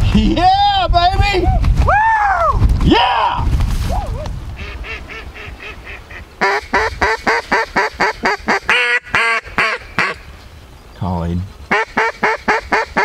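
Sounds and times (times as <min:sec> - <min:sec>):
duck call quacks: 0:04.6 - 0:10.2, 0:11.7 - 0:13.0.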